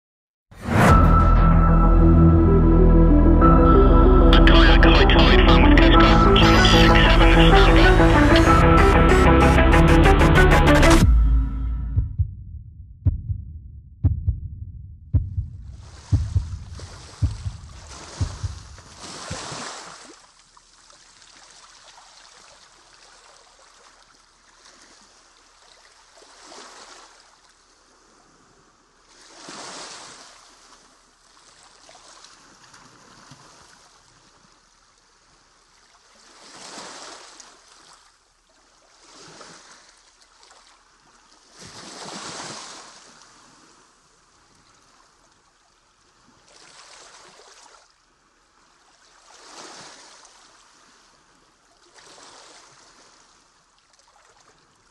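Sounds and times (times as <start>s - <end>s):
water washing and splashing: 15.8s - 20.2s.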